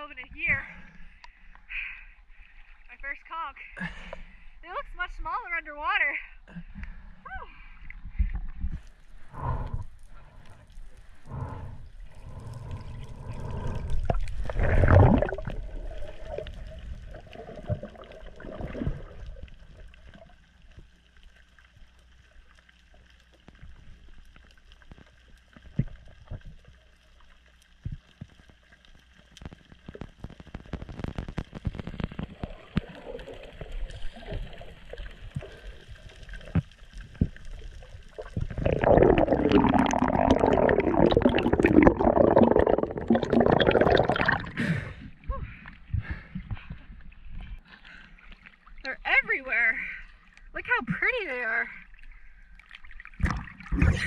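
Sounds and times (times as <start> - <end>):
underwater clicks and crackles: 0.2 - 3.3, 7.8 - 49.4, 50.0 - 54.0
muffled underwater movement: 6.6 - 54.0
loud bubbling and churning water: 9.1 - 20.5, 30.5 - 45.1, 52.5 - 54.0.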